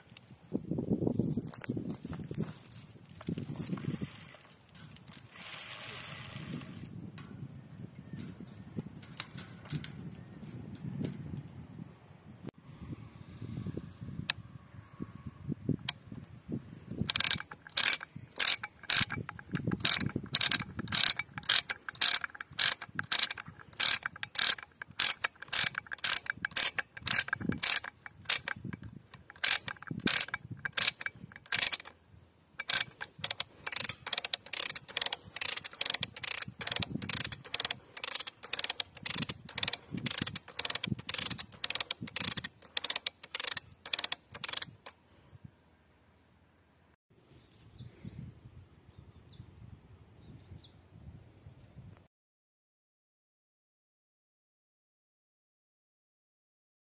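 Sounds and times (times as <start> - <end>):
ratchet pawl clicking: 17.0 - 32.0, 32.6 - 45.0.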